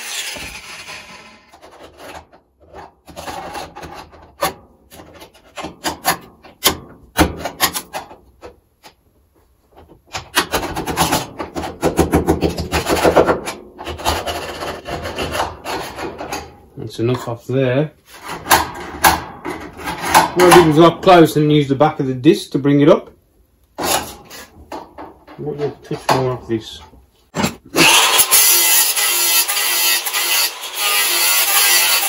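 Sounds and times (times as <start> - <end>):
file rasping on steel: 0.0 - 1.6, 27.8 - 32.0.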